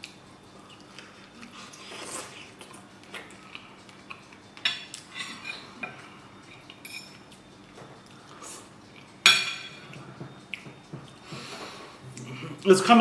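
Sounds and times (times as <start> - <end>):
fork clinking and scraping on plate: 4.6 - 7.4.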